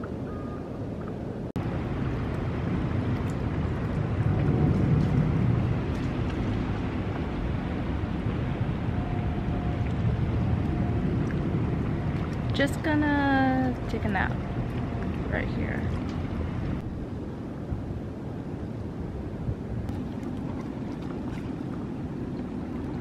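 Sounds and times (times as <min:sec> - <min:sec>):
wind rumbling on microphone: 0:00.0 - 0:23.0
water lapping: 0:09.8 - 0:16.8, 0:19.9 - 0:23.0.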